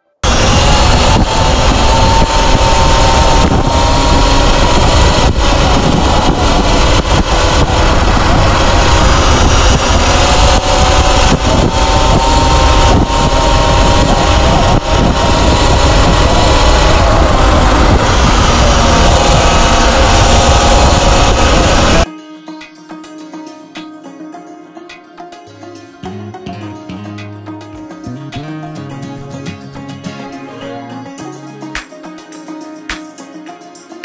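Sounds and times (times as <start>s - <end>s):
electric motor whine: 0.2s - 22.1s
wind and road noise: 0.2s - 22.1s.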